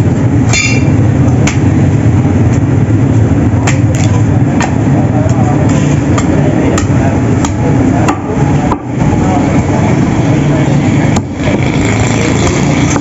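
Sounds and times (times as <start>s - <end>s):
steady background din: 0.0s - 13.0s.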